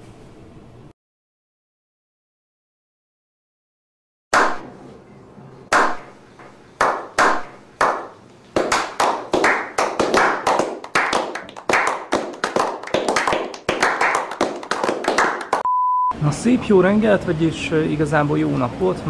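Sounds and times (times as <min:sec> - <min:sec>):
slow hand claps with echo: 0:06.8 - 0:15.6
small group applause: 0:06.8 - 0:15.6.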